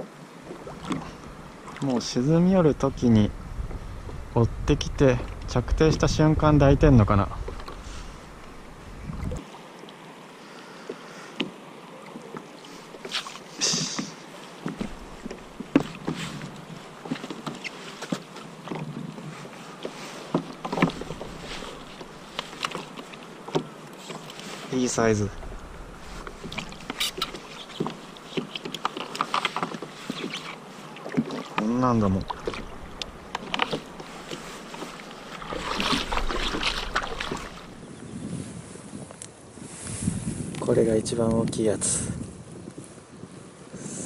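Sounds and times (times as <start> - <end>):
water sloshing: 0.4 - 4.3, 5.0 - 37.9
knocks and taps in kayak: 0.5 - 2.1, 7.3 - 7.8, 10.9 - 24.4, 26.2 - 30.5, 31.1 - 37.7
wet clicks and knocks: 20.3 - 24.3, 31.1 - 34.4.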